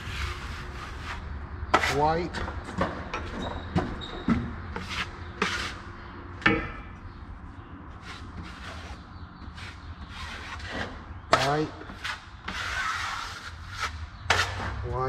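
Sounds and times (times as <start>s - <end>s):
taping knife scraping metal pan: 9.6s - 14.7s.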